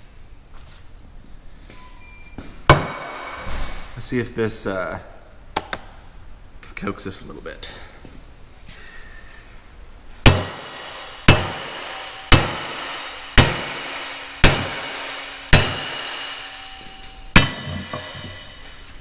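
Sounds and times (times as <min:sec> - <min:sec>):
hammer striking steel ringing: 0:02.7 - 0:03.7, 0:10.3 - 0:18.8.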